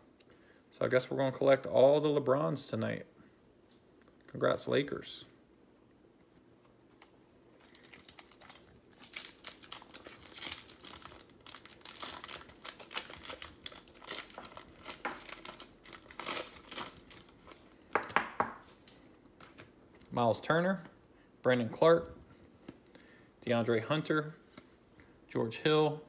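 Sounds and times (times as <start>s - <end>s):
plastic wrapper tearing and crinkling: 7.4s - 17.6s.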